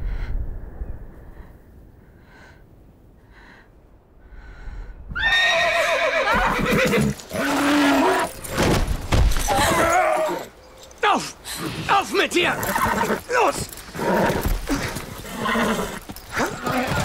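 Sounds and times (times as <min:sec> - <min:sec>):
horse whinnying: 0:05.2 - 0:08.6, 0:09.4 - 0:10.5, 0:12.5 - 0:17.0.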